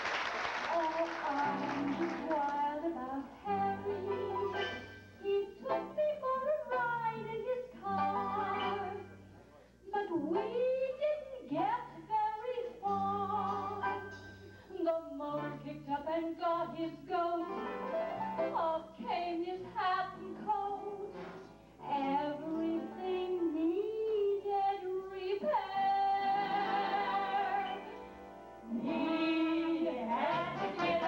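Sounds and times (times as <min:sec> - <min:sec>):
banjo band playing: 0:21.0 - 0:22.8, 0:29.6 - 0:31.0.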